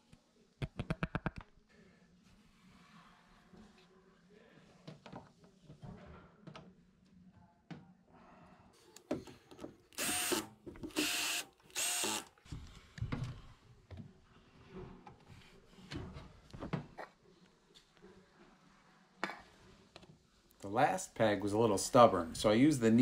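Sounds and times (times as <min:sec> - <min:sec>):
cordless drill whining: 0:10.0 - 0:12.3.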